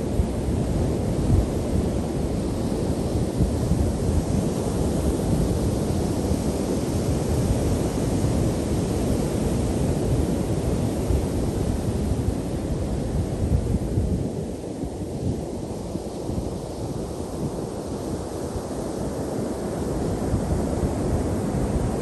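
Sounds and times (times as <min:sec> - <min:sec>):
wind rumbling on microphone: 0:00.0 - 0:22.0.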